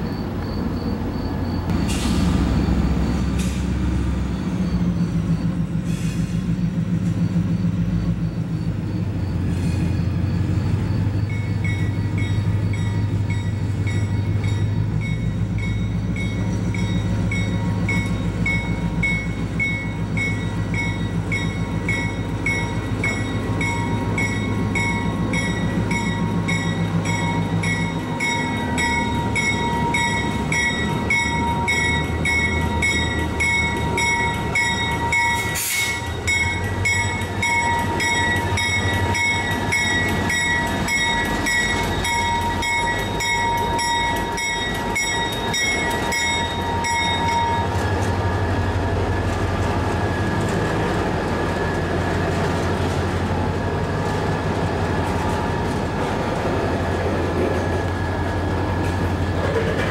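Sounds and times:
diesel locomotive passing: 0.0s - 59.9s
bell ringing: 11.7s - 47.7s.

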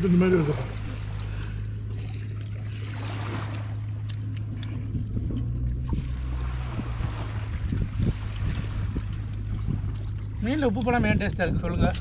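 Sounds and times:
low seaside drone: 0.0s - 12.0s.

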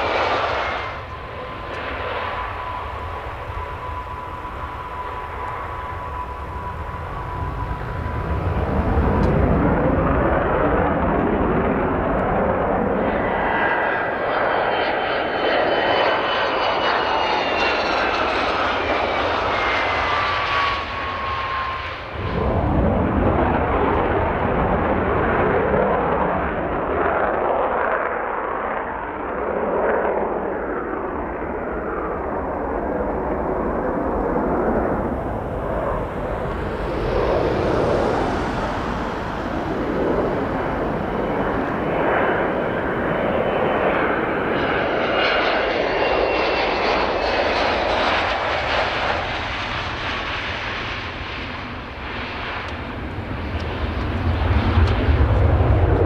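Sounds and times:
jet engine noise: 0.0s - 56.0s
faint high whine: 32.9s - 43.7s.

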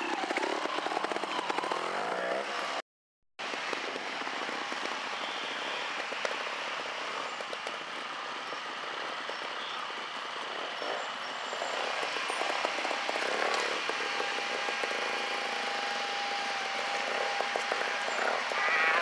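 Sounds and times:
motorcycle engine running at low revs: 0.0s - 2.8s, 3.4s - 19.0s
steady rushing noise: 3.4s - 10.7s.

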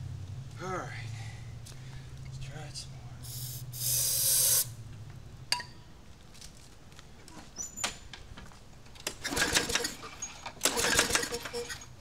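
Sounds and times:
aerosol spray hiss: 3.2s - 4.7s.

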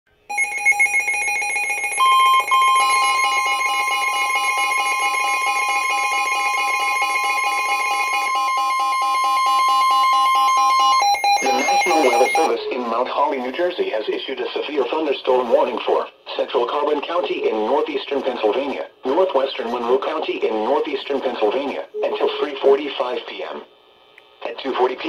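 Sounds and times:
rapid pulsing alarm beep: 0.3s - 12.6s
steady high alert tone: 0.3s - 13.8s, 21.9s - 22.9s
broadcast voice speaking: 11.4s - 23.7s, 24.4s - 25.0s.

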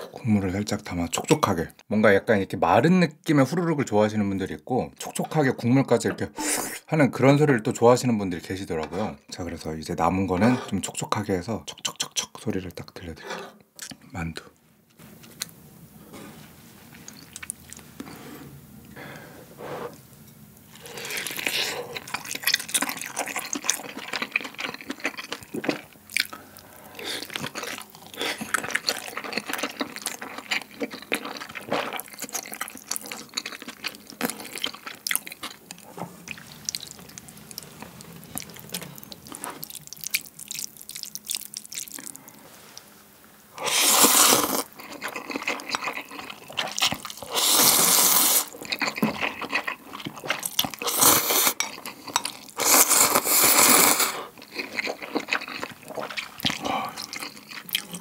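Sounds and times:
wet chewing: 17.0s - 18.2s, 20.8s - 42.9s, 43.6s - 58.0s
loud slurping of noodles: 43.6s - 44.7s, 47.2s - 48.6s, 52.6s - 54.3s.

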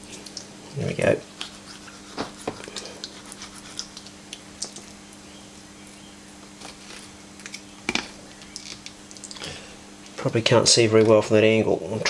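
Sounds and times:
steady low hum: 0.0s - 12.0s
knife scraping against fish bones: 1.4s - 4.1s.

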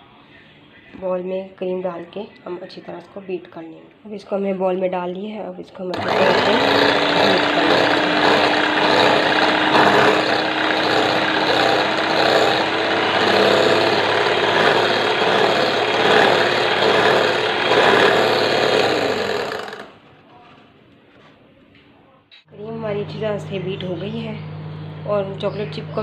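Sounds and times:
electric hand mixer whipping cream: 6.0s - 20.0s, 22.6s - 26.0s.

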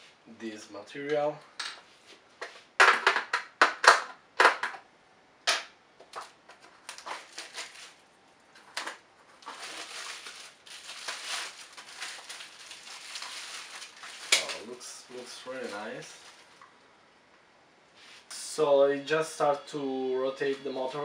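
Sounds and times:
plastic wrapping crinkling: 6.2s - 16.7s.

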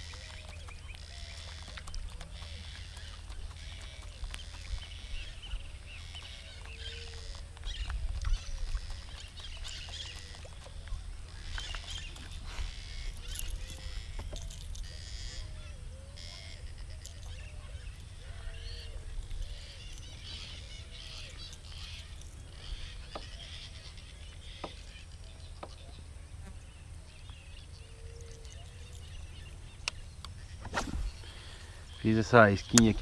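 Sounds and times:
high bird chirps: 0.0s - 26.0s, 27.1s - 33.0s
arching bird calls: 0.0s - 26.1s, 27.2s - 33.0s
wind rumble on microphone: 3.2s - 20.4s.

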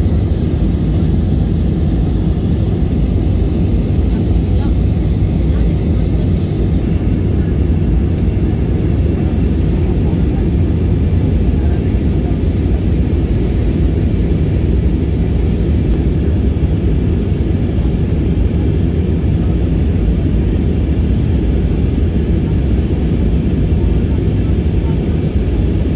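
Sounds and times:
airplane cabin rumble: 0.0s - 25.9s.

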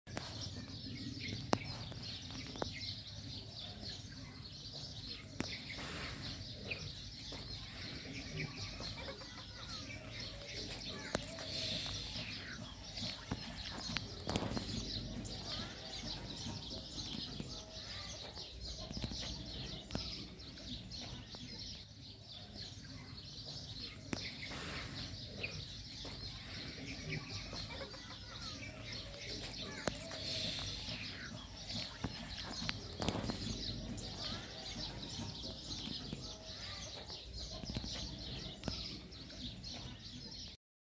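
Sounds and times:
birds calling: 0.1s - 40.6s
chickens clucking: 5.4s - 21.8s, 22.9s - 40.5s
sharp clicks: 31.8s - 34.1s.

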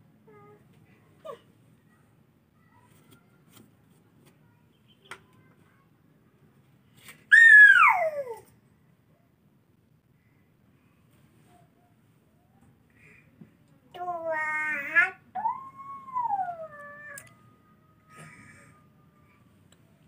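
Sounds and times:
child squealing: 7.3s - 8.4s.

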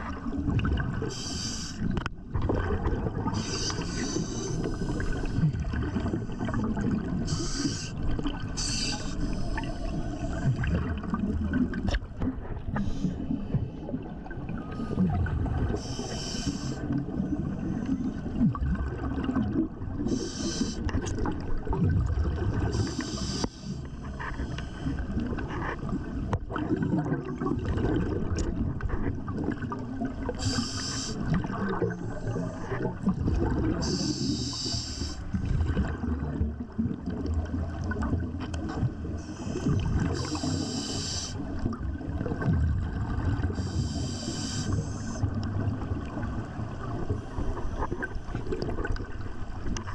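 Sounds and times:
low rumble of moving water: 0.0s - 49.9s
hiss of scuba bubbles: 0.7s - 11.2s, 12.7s - 13.6s, 14.6s - 18.6s, 19.2s - 21.4s, 22.4s - 28.4s, 29.5s - 36.0s, 38.7s - 42.5s, 43.1s - 45.4s.

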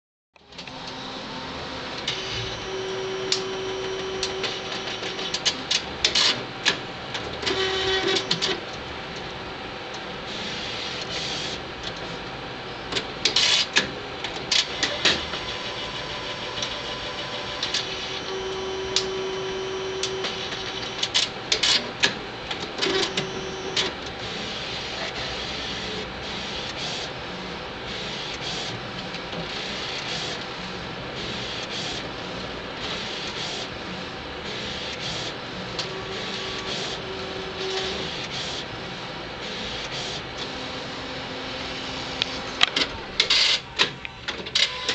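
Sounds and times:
printer whirring: 0.4s - 44.9s
printer rapid clicking: 3.2s - 9.2s, 12.9s - 27.2s, 34.4s - 38.8s, 41.6s - 44.9s
short humming tones: 15.4s - 21.0s.

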